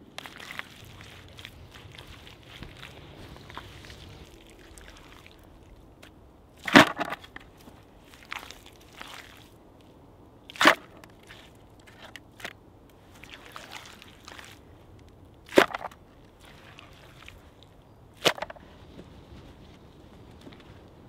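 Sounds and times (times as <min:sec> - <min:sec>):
rustling leaf litter: 0:00.0 - 0:05.8
hands scraping soil: 0:00.0 - 0:09.5.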